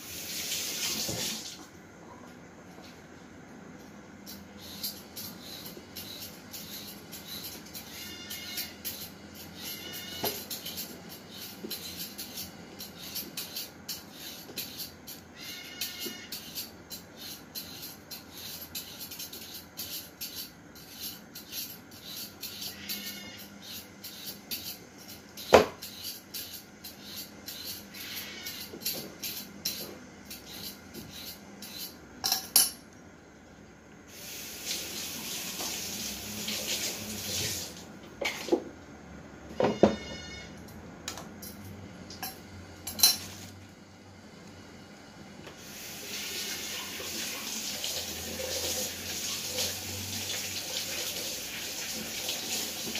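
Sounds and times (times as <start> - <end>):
tap water running: 0.0 - 1.8, 34.1 - 38.6, 45.6 - 52.9
utensils clicking on chopping board: 4.2 - 32.0.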